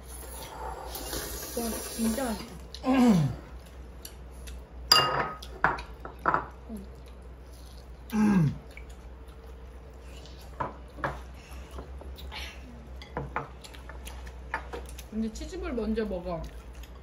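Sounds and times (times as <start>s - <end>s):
utensils clinking against bowls: 4.9s - 6.5s.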